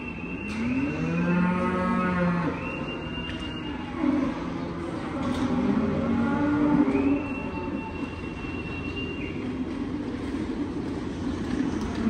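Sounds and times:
cow mooing: 0.6 - 2.6, 3.9 - 7.8.

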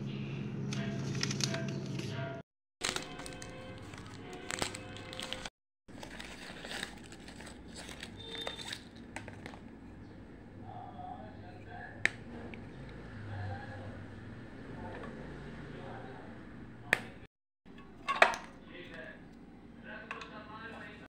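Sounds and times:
wrapper tearing and crinkling: 2.8 - 9.6.

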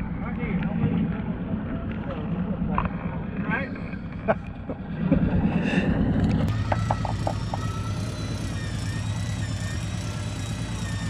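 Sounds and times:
boat engine idling: 3.6 - 11.0
short blips: 6.4 - 11.0.

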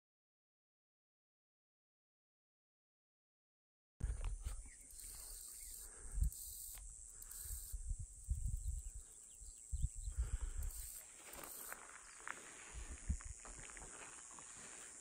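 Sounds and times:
high insect buzz: 4.0 - 15.0.

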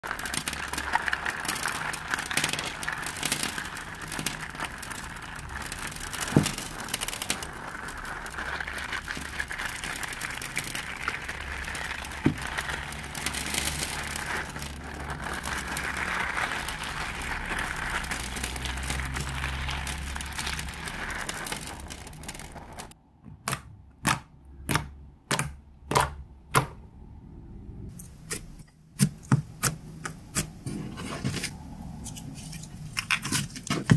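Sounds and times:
crunchy slime crackling: 0.0 - 23.0.

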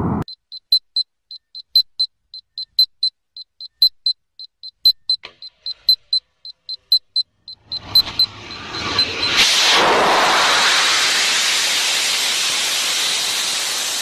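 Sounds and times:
short high electronic beeps: 0.2 - 9.5
rocket motor rushing hiss: 8.1 - 14.0.

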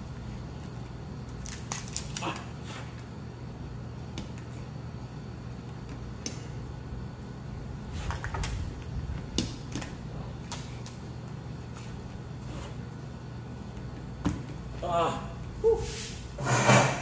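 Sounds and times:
steady low hum: 0.0 - 17.0
lobster shell cracking: 1.4 - 2.4.

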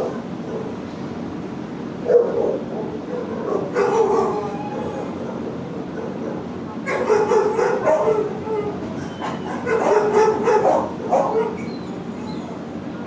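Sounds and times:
kennel background noise: 0.0 - 13.0
dog howling: 3.2 - 12.7.

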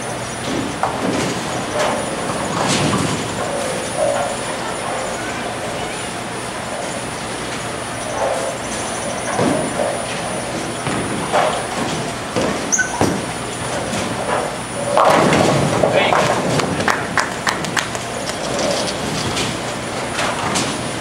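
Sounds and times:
bowling alley din: 0.0 - 21.0
bowling pins clattering: 0.0 - 21.0
bowling ball thud and rolling: 9.3 - 17.8.

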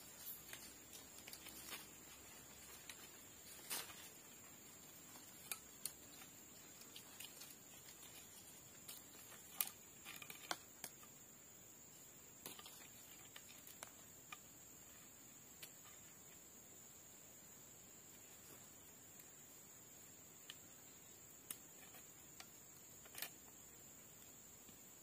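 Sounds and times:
steady high hiss: 0.0 - 25.0
clicks and rustles of binding: 0.1 - 11.2, 21.4 - 23.5.

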